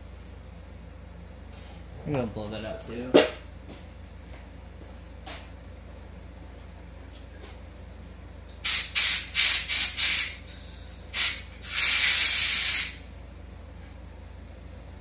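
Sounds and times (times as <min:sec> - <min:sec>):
compressed air blow gun blasts: 0:08.6 - 0:13.0.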